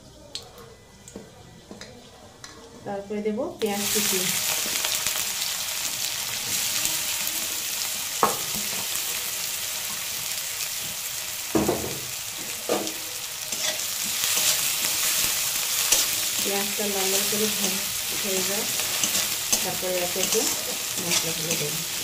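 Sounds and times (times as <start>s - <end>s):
onions sizzling in oil: 3.6s - 22.0s
metal spatula scraping pan: 13.5s - 22.0s.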